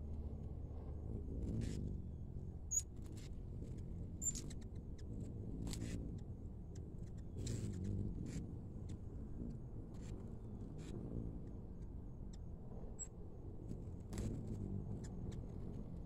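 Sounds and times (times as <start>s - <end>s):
low steady rumble: 0.0s - 16.0s
hummingbird high chirps: 2.7s - 2.9s, 3.6s - 9.0s.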